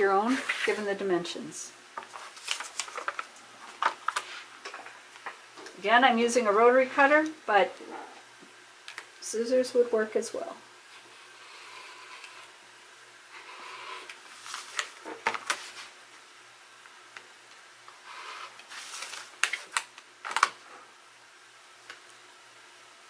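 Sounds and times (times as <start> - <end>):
paper rustling: 2.0 - 4.5, 14.3 - 15.9, 18.7 - 20.6.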